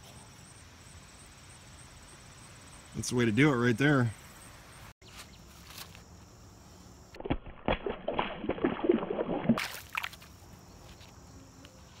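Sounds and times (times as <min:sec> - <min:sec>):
water splashing in shallows: 0:07.2 - 0:10.2.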